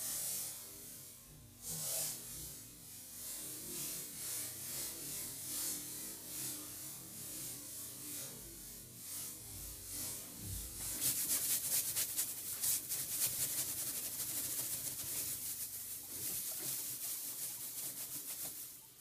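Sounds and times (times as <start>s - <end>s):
hay rustling and crunching: 10.9s - 19.0s.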